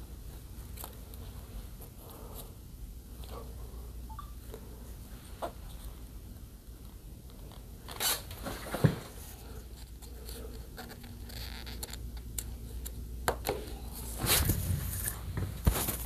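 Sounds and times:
tape scraping and clicking: 9.8s - 13.6s.

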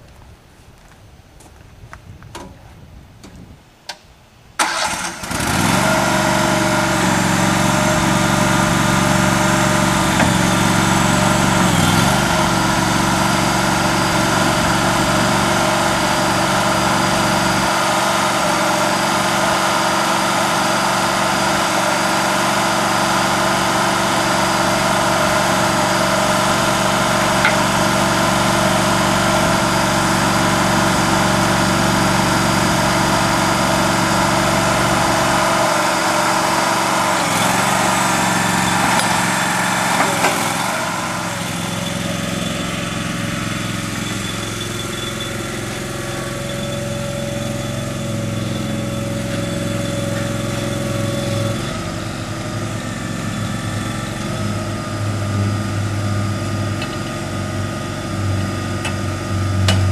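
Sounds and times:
engine cranking: 4.6s - 6.1s
engine idling: 4.6s - 59.9s.

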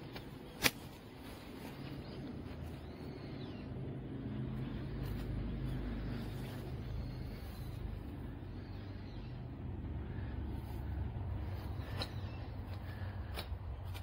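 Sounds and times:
car engine humming: 0.0s - 14.0s
scissors snipping: 0.1s - 1.0s.

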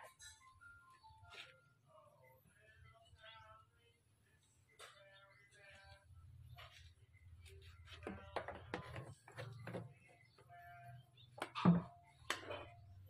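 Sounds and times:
plastic jugs knocking on wood: 8.0s - 10.0s, 11.4s - 12.5s.

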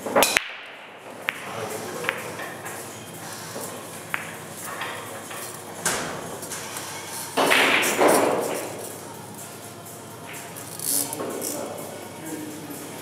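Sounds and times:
pool balls knocking: 0.0s - 2.7s, 3.7s - 6.4s, 7.4s - 8.8s
pool balls clicking: 0.0s - 2.9s, 3.5s - 9.0s.

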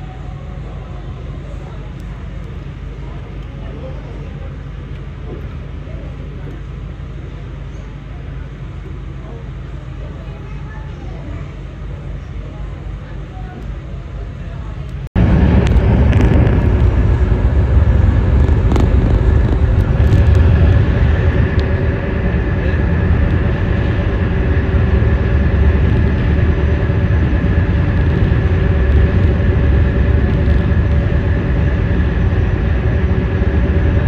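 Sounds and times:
ferry engine drone: 0.0s - 34.0s
wind rumble: 15.0s - 34.0s.

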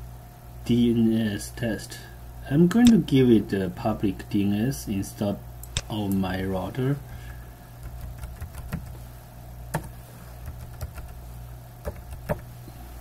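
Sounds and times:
steady low hum: 0.0s - 13.0s
keyboard keys typing: 7.8s - 9.0s, 9.7s - 11.2s, 11.8s - 12.4s.

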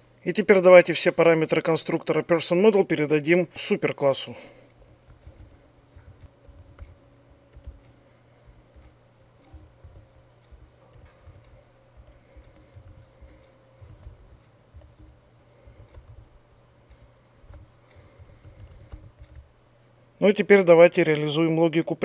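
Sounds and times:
typing on computer keyboard: 4.8s - 16.3s, 16.9s - 19.5s.

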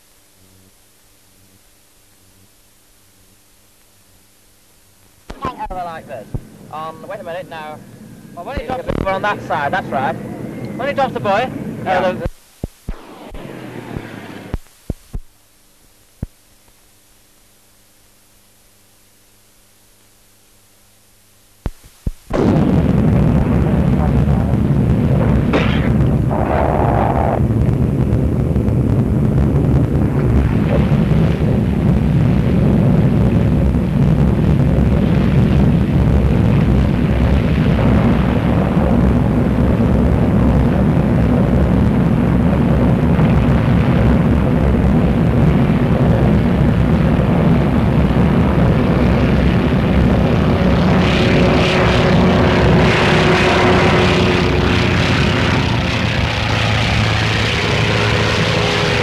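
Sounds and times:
aircraft radial engine running: 5.3s - 12.3s, 12.9s - 14.6s, 22.4s - 59.0s.

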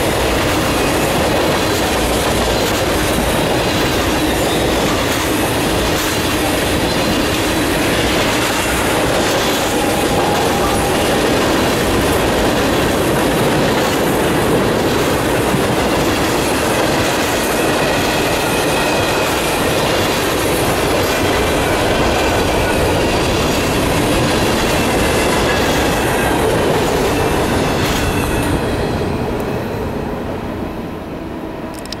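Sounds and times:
freight train wheels rumbling: 0.0s - 32.0s.

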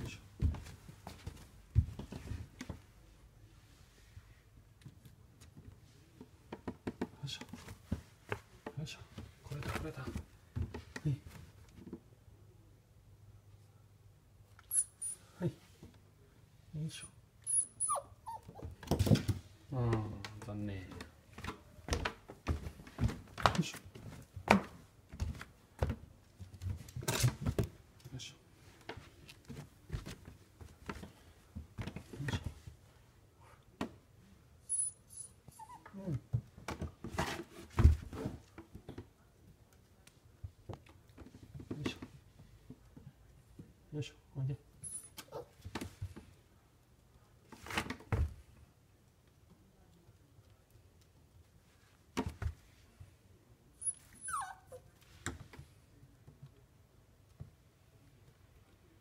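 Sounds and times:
puppy whimpering: 17.5s - 18.7s, 34.7s - 36.1s, 53.8s - 54.9s.

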